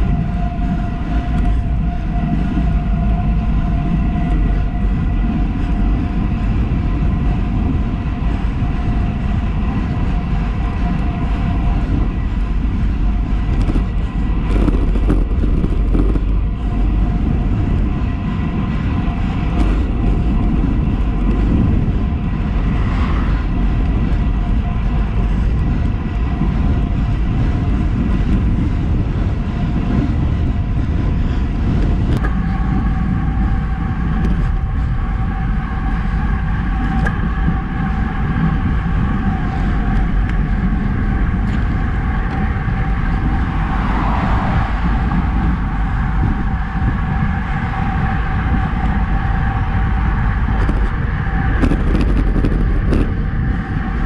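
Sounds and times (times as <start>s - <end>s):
tyres rolling on asphalt: 0.0s - 54.0s
wheel hum: 0.0s - 54.0s
wind rushing over microphone: 0.0s - 54.0s.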